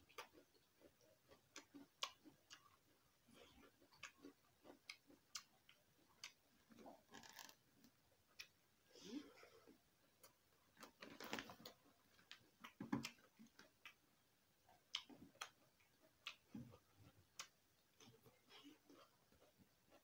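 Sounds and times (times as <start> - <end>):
chewing and mouth clicks: 0.0 - 7.6, 14.7 - 20.0.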